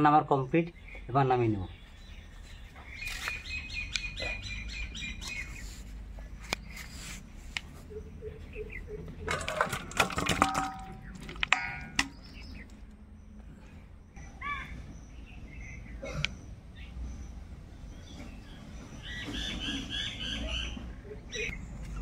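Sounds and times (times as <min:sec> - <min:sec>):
bird chirping: 0:00.0 - 0:22.0
metal cookware knocking and scraping: 0:09.2 - 0:12.2.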